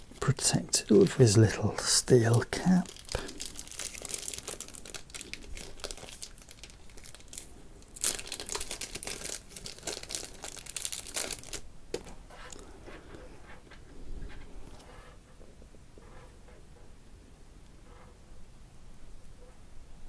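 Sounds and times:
plastic bag crinkling: 0.0 - 12.6.

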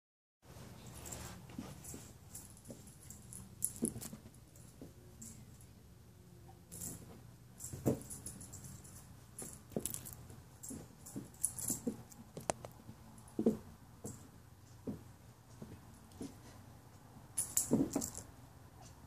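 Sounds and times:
toy rustling and rattling: 0.8 - 5.7, 6.6 - 13.5, 17.3 - 18.4.

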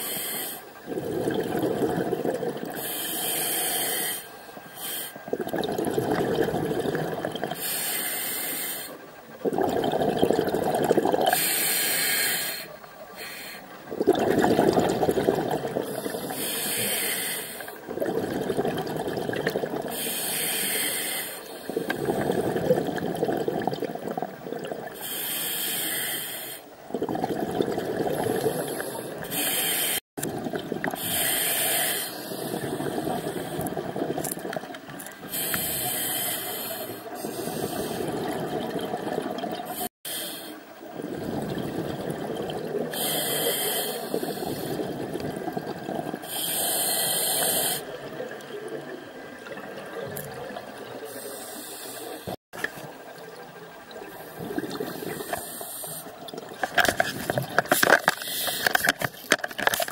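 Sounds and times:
regulator breathing hiss: 0.0 - 0.7, 2.8 - 5.3, 7.6 - 9.0, 11.3 - 13.7, 15.8 - 17.8, 19.9 - 21.9, 25.0 - 26.7, 28.5 - 30.0, 31.0 - 33.7, 35.2 - 38.2, 39.7 - 40.7, 42.9 - 44.8, 46.2 - 48.0, 51.0 - 52.4, 54.9 - 56.2, 58.2 - 58.9
bubbles rushing underwater: 0.9 - 2.8, 5.3 - 7.6, 9.4 - 11.4, 13.9 - 16.2, 17.9 - 19.9, 21.7 - 25.0, 26.9 - 29.3, 30.2 - 31.3, 32.4 - 35.4, 37.3 - 39.9, 40.9 - 43.1, 44.1 - 46.3, 53.9 - 55.4.

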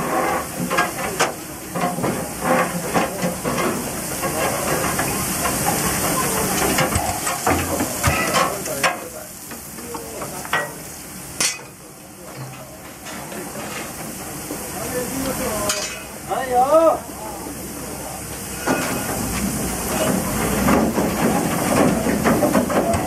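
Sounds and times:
steam locomotive hissing: 0.0 - 23.0
metal clanks and knocks: 6.6 - 10.8, 11.4 - 14.0, 19.9 - 23.0.

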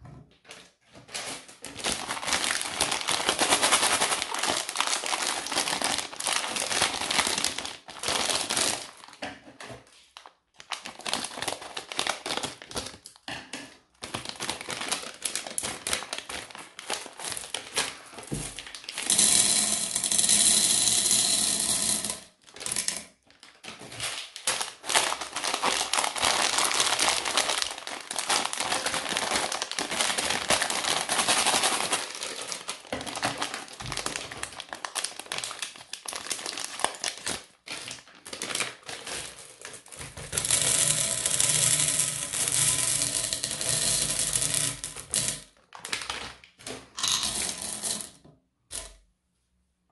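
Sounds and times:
plastic bags crinkling: 0.5 - 9.6, 10.2 - 13.2, 13.8 - 19.1, 22.4 - 42.6, 44.7 - 47.4
candy pouring onto platter: 1.7 - 9.1, 14.1 - 23.0, 24.1 - 39.3, 40.0 - 46.2, 47.0 - 48.1.

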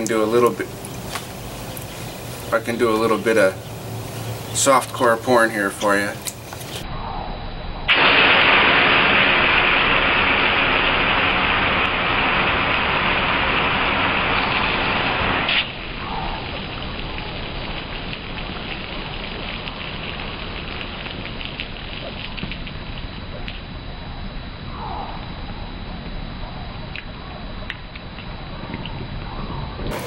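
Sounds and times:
hose nozzle spraying water: 0.0 - 6.9, 9.2 - 15.8
water spattering: 0.0 - 6.9, 7.9 - 23.6.

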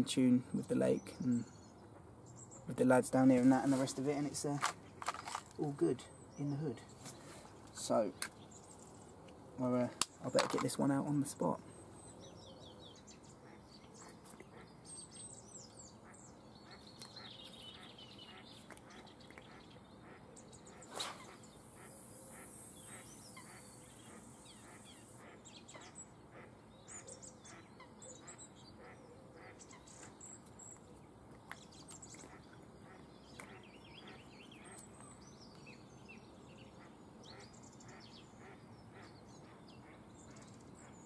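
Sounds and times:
water birds calling: 0.0 - 41.0
fishing rod swish: 20.8 - 21.4.

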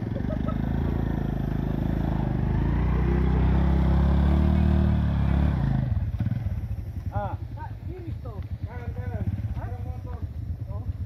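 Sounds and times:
scooter engine revving: 0.0 - 8.0.

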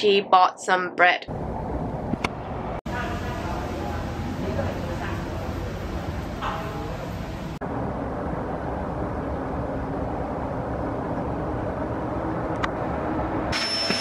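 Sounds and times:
city traffic noise: 1.3 - 13.6
vacuum cleaner running: 13.5 - 14.0.

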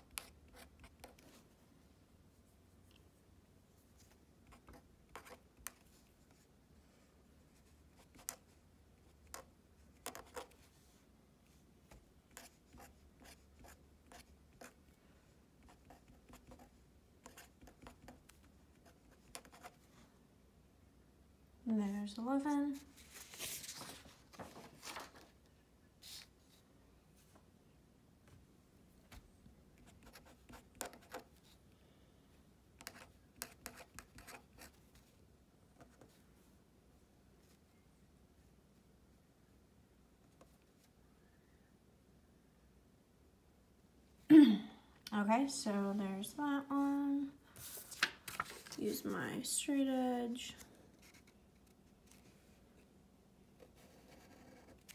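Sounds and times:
marker scratching on paper: 15.6 - 19.8, 53.7 - 54.9.

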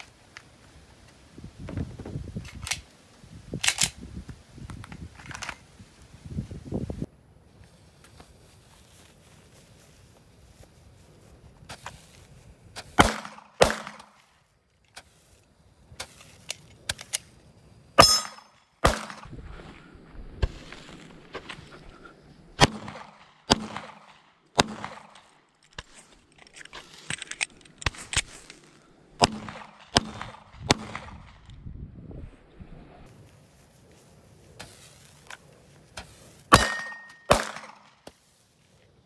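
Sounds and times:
handgun shots: 13.0 - 14.1, 18.0 - 19.2, 36.5 - 37.9.

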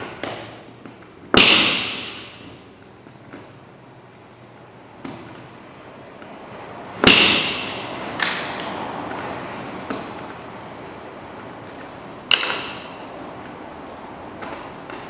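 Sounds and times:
hand tools snapping clicks: 12.3 - 12.8.

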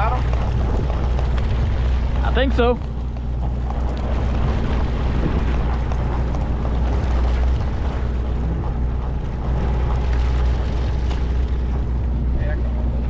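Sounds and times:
boat engine rumbling: 0.0 - 13.0.

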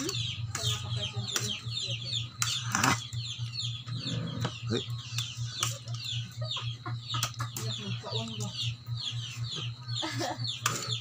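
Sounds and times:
birds peeping: 0.0 - 11.0.

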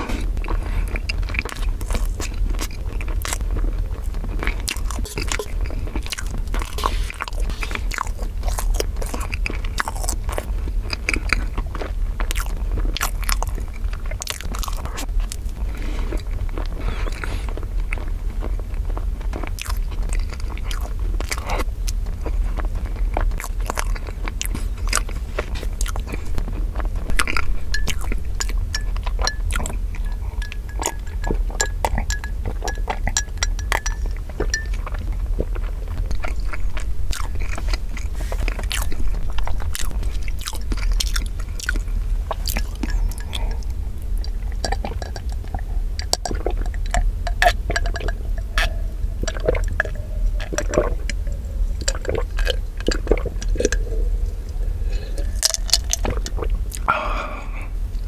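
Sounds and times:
steady low hum: 0.0 - 58.0
swallowing gulps: 0.0 - 58.0
wet chewing: 0.0 - 58.0
mouth clicks and lip smacks: 22.9 - 54.5.

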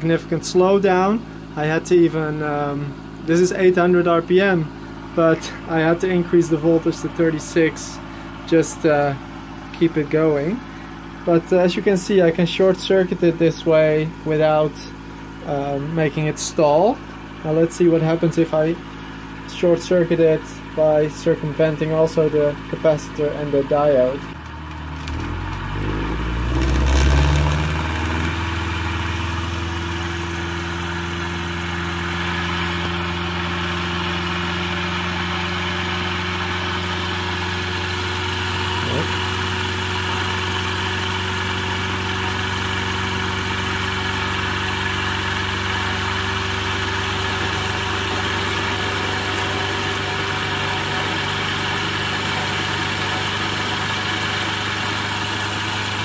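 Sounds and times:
electric motor humming: 24.3 - 56.0.

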